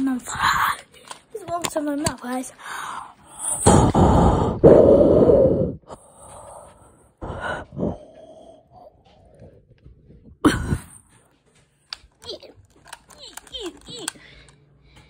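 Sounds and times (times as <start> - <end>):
soft breaths: 2.4 - 11.8, 14.1 - 15.0.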